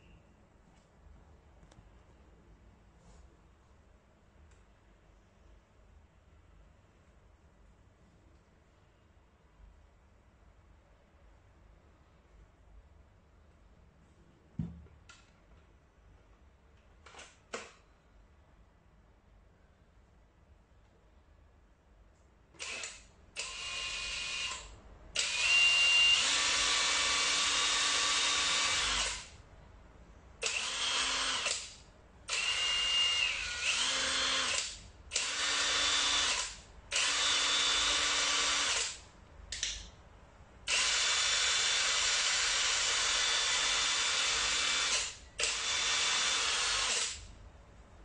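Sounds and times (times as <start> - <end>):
impact wrench motor whining: 22.6 - 29.3, 32.3 - 39.0, 40.7 - 47.2.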